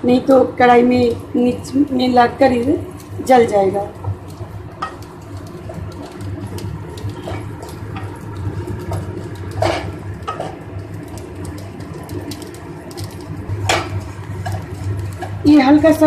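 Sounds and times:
spatula scraping in pan: 4.3s - 16.0s.

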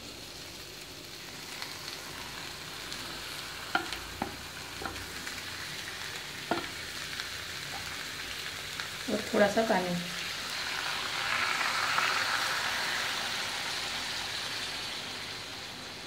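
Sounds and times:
chicken sizzling in a hot pan: 0.0s - 16.0s
spatula knocking on tray and pan: 3.7s - 5.1s, 6.4s - 6.8s.

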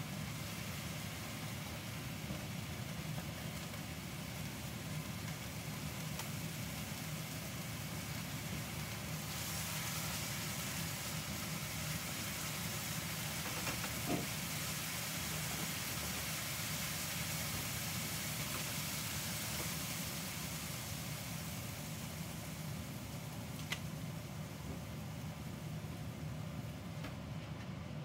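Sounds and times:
bright hiss: 0.0s - 26.9s
range hood fan humming: 0.0s - 28.0s.

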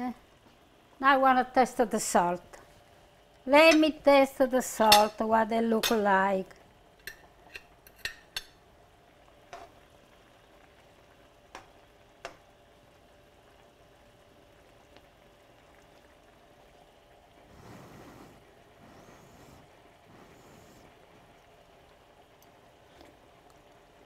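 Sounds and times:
sauce simmering: 0.2s - 24.0s
spoon clinking against pan: 4.9s - 5.2s, 7.0s - 8.6s.

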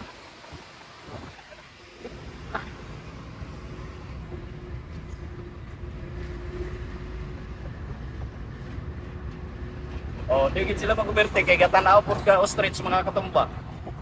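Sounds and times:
vehicle road rumble: 0.0s - 14.0s.

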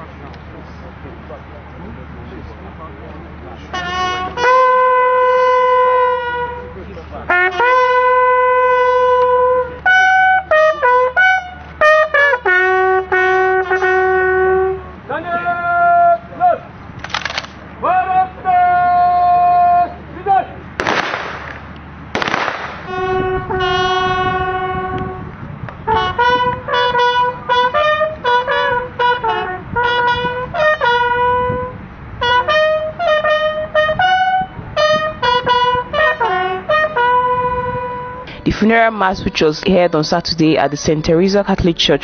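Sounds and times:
brass horn playing a call: 3.6s - 16.7s, 22.2s - 39.2s
loud bursts of noise: 20.7s - 23.4s.

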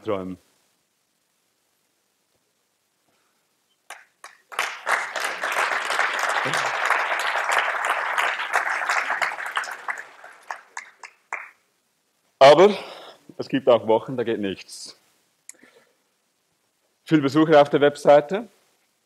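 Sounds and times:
audience applause: 3.9s - 11.6s.

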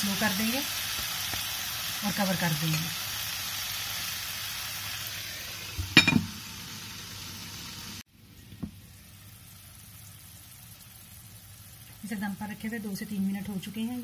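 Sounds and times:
curry sizzling in a pan: 0.0s - 14.0s
glass lid clinking on pan: 5.8s - 6.3s.

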